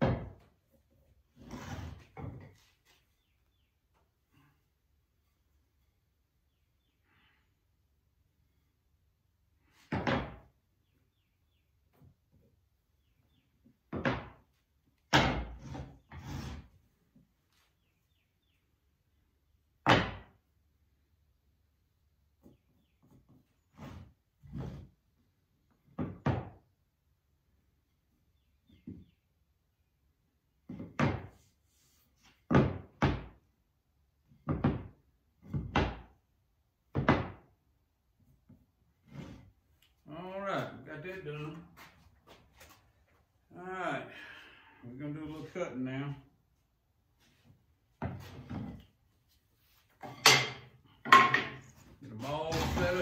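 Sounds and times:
wooden boards thudding on workbench: 0.0s - 0.4s, 9.9s - 10.4s, 13.9s - 14.4s, 15.1s - 15.8s, 19.8s - 20.3s, 26.0s - 26.6s, 30.7s - 31.4s, 32.5s - 33.4s, 34.4s - 36.1s, 36.9s - 37.5s.

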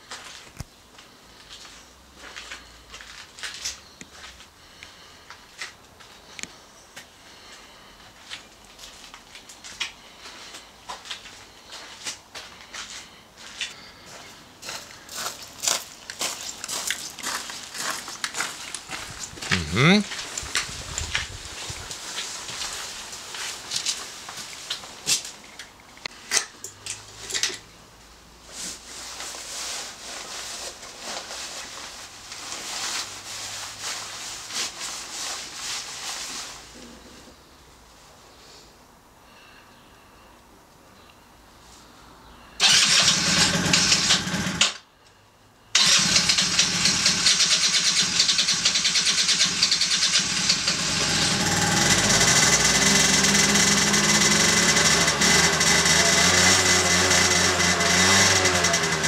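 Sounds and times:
footsteps on gritty concrete: 7.0s - 25.3s.

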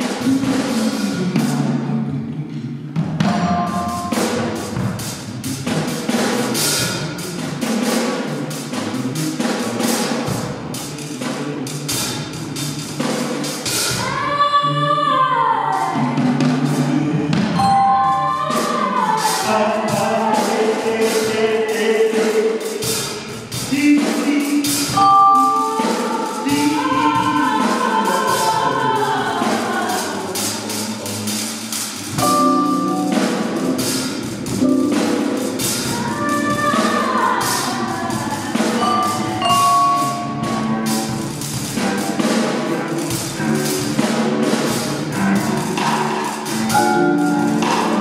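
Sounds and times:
mallet percussion: 3.0s - 8.7s, 17.4s - 20.7s, 24.6s - 29.6s, 31.2s - 48.0s
sharp percussion strikes: 3.2s - 11.2s, 17.5s - 28.7s, 29.4s - 48.0s
wordless sliding vocals: 10.8s - 48.0s
harp: 32.2s - 37.0s.

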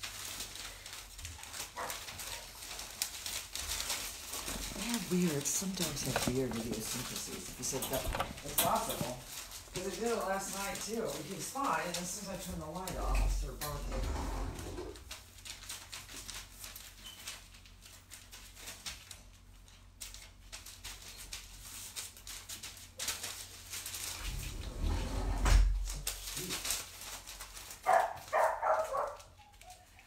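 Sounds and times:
rustles and small clicks: 0.0s - 13.9s, 14.8s - 30.0s
dog barking: 27.8s - 29.8s.

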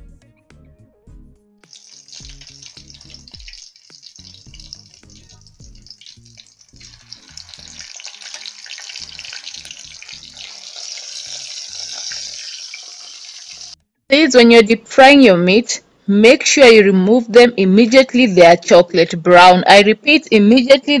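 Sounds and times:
background music with bass: 0.0s - 1.6s, 2.2s - 3.6s, 4.2s - 7.9s, 9.0s - 10.4s
meat deep frying in oil: 1.6s - 13.8s.

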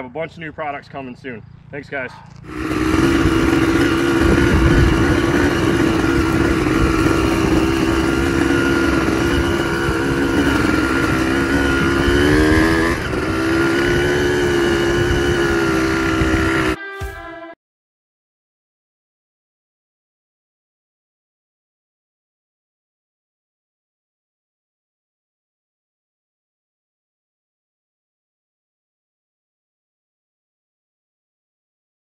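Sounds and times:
two-stroke engine under load: 0.1s - 16.8s.

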